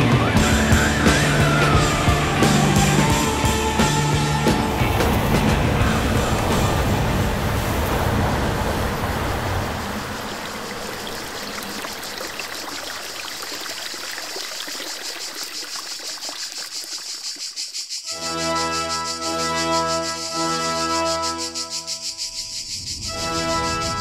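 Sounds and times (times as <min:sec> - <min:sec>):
organ-like chords: 0:00.0 - 0:07.4
water running and trickling: 0:04.8 - 0:18.1.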